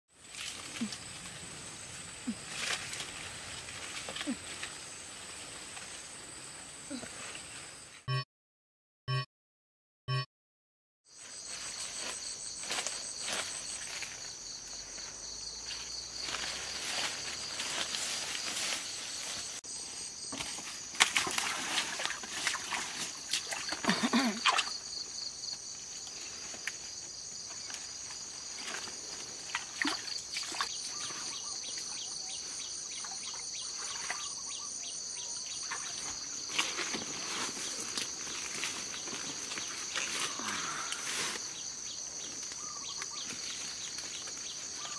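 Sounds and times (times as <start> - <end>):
leaves and stems rustling: 0.2 - 6.4, 11.2 - 34.4, 35.6 - 44.9
high-pitched insect chorus: 11.1 - 44.9.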